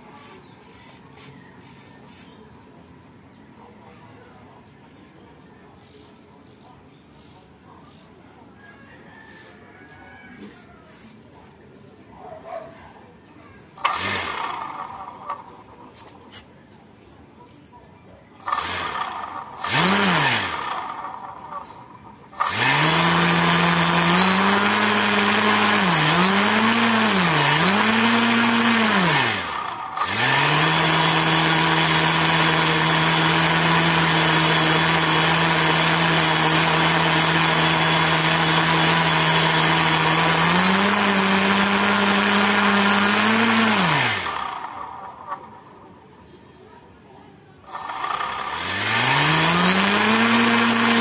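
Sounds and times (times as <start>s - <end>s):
electric motor spinning propeller: 0.0s - 2.4s, 5.7s - 8.4s, 9.2s - 11.6s, 13.8s - 16.2s, 18.4s - 45.8s, 47.7s - 51.0s.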